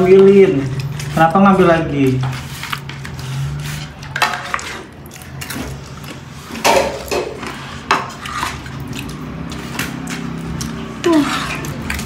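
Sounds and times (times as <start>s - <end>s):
dishes clinking: 6.6s - 8.1s
rice paddle scraping metal pot: 11.1s - 12.0s.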